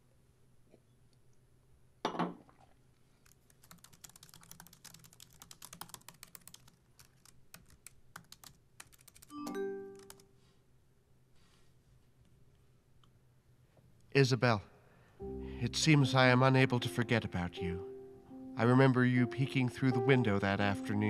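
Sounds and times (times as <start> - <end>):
wine glass set down on desk: 2.0 - 2.4
typing on laptop keyboard: 3.2 - 10.3.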